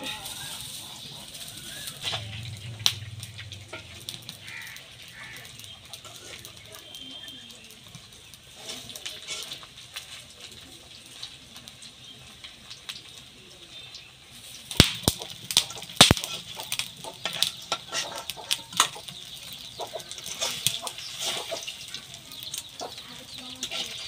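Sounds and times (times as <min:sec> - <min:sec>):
clinking and scraping into steel bowl: 0:00.0 - 0:02.8, 0:03.4 - 0:04.3, 0:08.7 - 0:10.2, 0:15.6 - 0:24.0
frying oil sizzling: 0:00.0 - 0:24.0
spatula striking iron wok: 0:01.9 - 0:04.8, 0:14.8 - 0:19.6.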